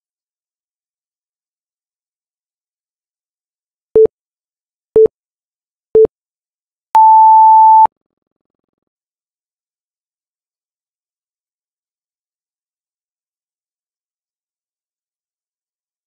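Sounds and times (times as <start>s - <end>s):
timer countdown beeps: 7.0s - 7.9s.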